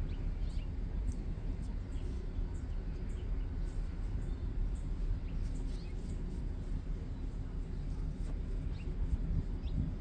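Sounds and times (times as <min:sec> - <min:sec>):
faint bird chirps: 0:00.0 - 0:10.0
low rumble: 0:00.0 - 0:10.0.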